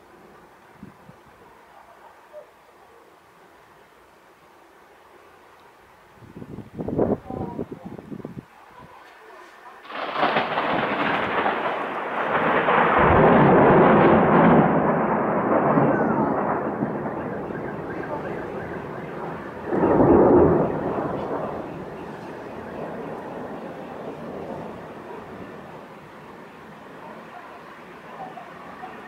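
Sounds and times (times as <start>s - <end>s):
faint storm hiss: 0.0s - 29.0s
thunder rumbling: 9.8s - 29.0s.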